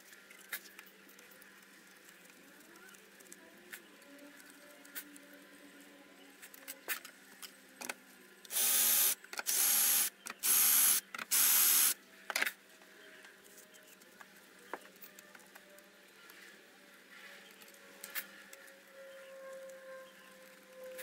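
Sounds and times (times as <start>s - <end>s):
spray nozzle hissing: 8.5s - 12.0s.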